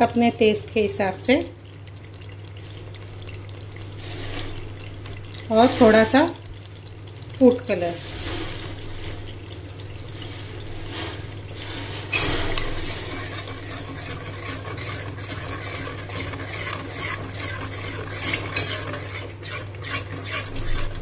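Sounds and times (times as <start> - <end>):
spoon stirring paste in a pot: 0.4 - 21.0.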